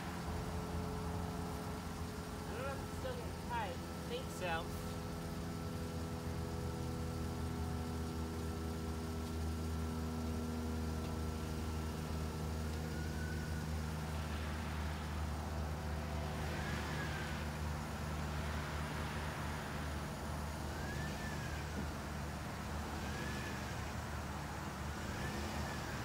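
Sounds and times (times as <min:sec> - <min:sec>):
thin high whine: 0:00.0 - 0:08.6, 0:09.5 - 0:26.0
minivan engine running: 0:00.0 - 0:26.0.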